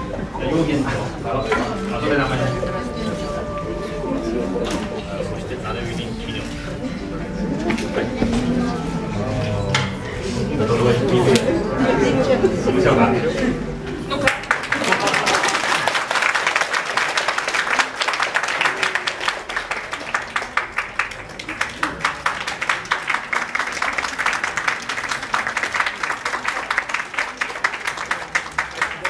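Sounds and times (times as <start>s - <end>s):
audience applauding: 14.1s - 29.0s.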